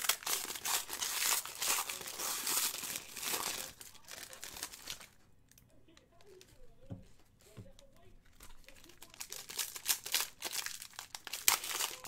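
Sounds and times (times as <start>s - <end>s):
wrapper tearing and crinkling: 0.0s - 5.2s, 8.3s - 12.0s.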